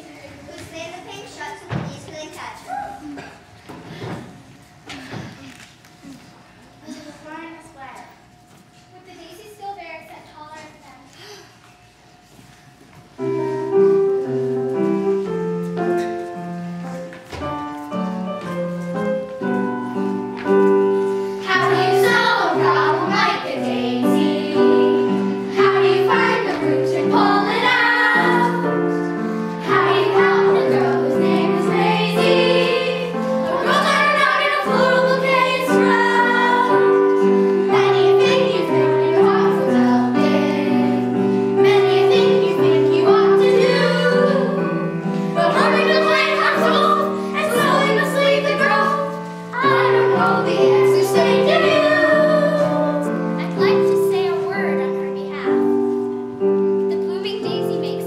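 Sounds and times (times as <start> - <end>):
instrumental accompaniment: 11.8 - 58.0
children's chorus singing: 21.4 - 53.9.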